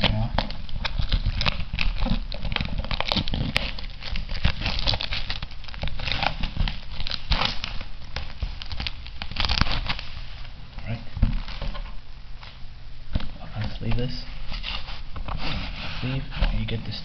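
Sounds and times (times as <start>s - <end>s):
plastic shrink-wrap crinkling: 0.0s - 12.6s.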